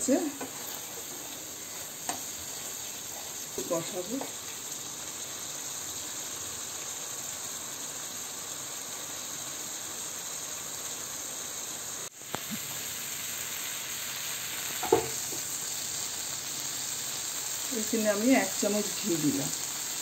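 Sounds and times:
paste sizzling in oil: 0:00.0 - 0:20.0.

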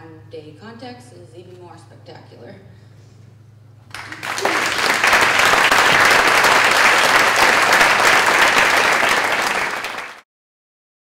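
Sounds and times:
audience applauding: 0:03.9 - 0:10.2.

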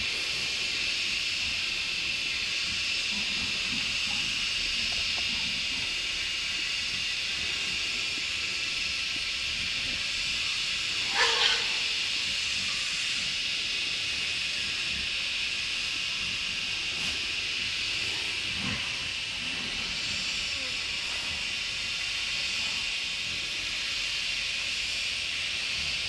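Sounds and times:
forest insects droning: 0:00.0 - 0:26.0
animal call: 0:10.8 - 0:12.5.

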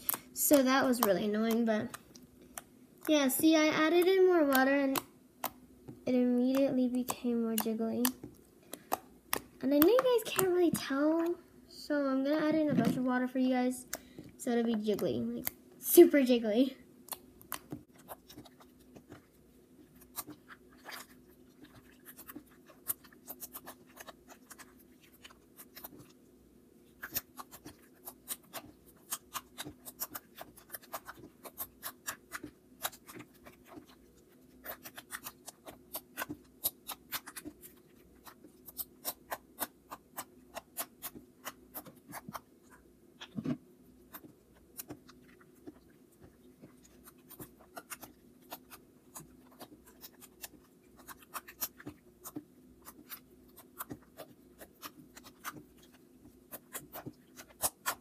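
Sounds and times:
slime kneaded by hand: 0:00.0 - 0:11.4, 0:17.1 - 0:26.2, 0:26.8 - 0:58.0
small wet clicks and pops: 0:04.0 - 0:10.9, 0:17.0 - 0:19.3
loud slime squelch: 0:17.5 - 0:26.2, 0:26.9 - 0:58.0.

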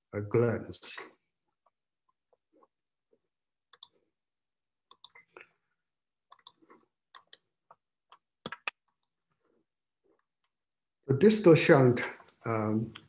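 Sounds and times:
computer mouse clicks: 0:03.7 - 0:04.0, 0:04.9 - 0:05.3, 0:06.3 - 0:07.5, 0:08.1 - 0:09.1.

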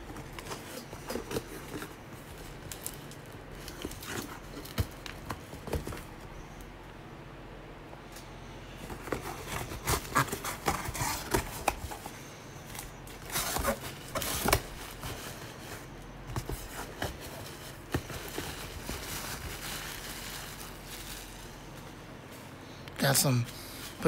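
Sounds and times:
bubble wrap crinkling: 0:00.0 - 0:06.3, 0:08.8 - 0:22.0
cardboard flaps scraping: 0:08.8 - 0:12.2, 0:12.8 - 0:21.5.

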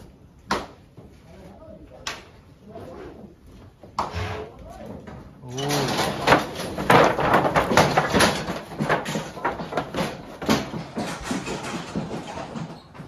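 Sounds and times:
cattle knocking against chute: 0:05.8 - 0:13.0.

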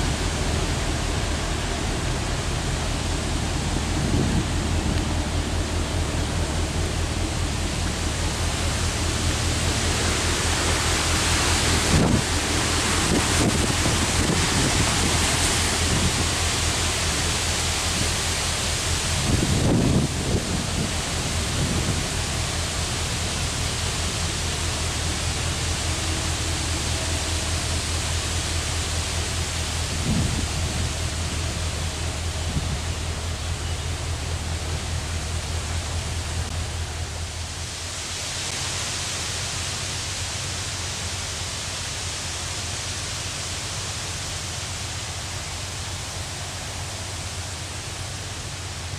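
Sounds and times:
low drone: 0:00.0 - 0:48.9
rushing hiss of wind and water: 0:00.0 - 0:48.9
wind rushing over microphone: 0:03.6 - 0:05.6, 0:09.5 - 0:16.6, 0:19.2 - 0:22.3, 0:29.9 - 0:31.3.

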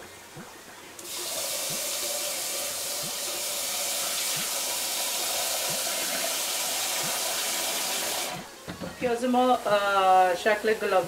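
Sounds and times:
tap water running into saucepan: 0:01.0 - 0:08.4.

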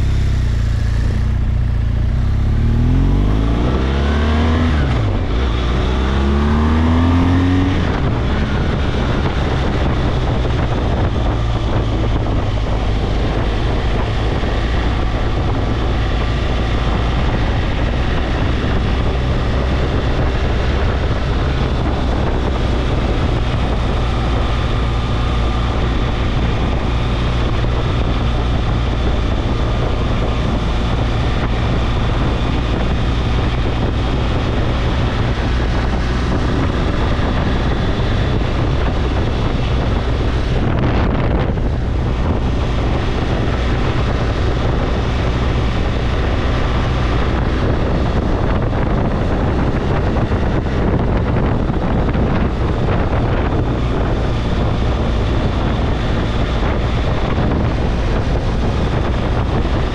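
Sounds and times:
motorcycle engine running: 0:00.0 - 0:59.9
wind noise on microphone: 0:00.0 - 0:59.9.

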